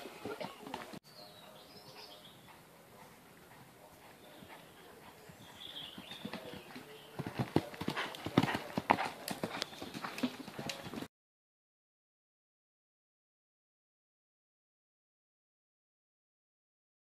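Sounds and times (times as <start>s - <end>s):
horse hoofbeats on dirt: 2.0s - 11.1s.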